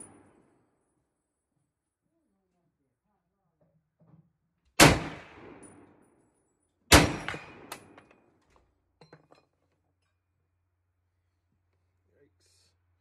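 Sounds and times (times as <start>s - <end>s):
rifle shots echoing: 4.8s - 5.9s, 6.9s - 8.0s.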